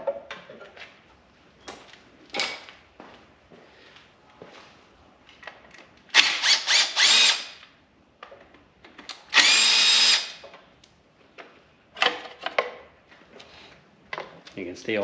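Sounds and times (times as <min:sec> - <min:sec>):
cordless drill whining: 0:06.2 - 0:07.6, 0:09.3 - 0:10.4.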